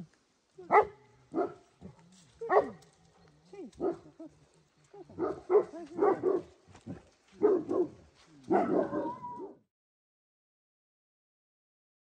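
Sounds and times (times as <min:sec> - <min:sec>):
large dogs barking and yelping: 0:00.6 - 0:09.6.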